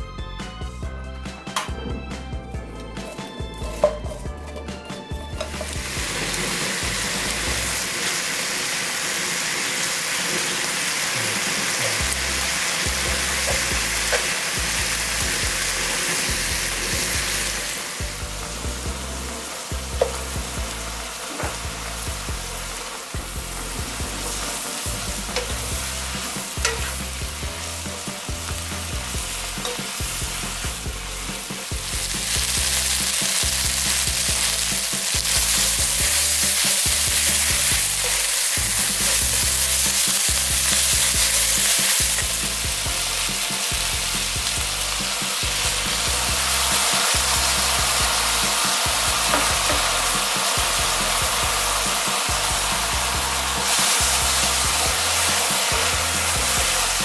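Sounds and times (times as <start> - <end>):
meat sizzling in frying pan: 5.4 - 57.0
utensils clicking against pan: 13.0 - 14.4, 25.2 - 27.1, 29.6 - 30.1, 32.3 - 42.6, 49.3 - 49.9.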